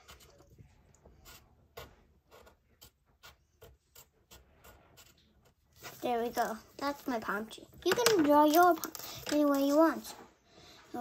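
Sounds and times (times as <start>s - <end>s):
pencil scratching on paper: 0.0s - 7.2s.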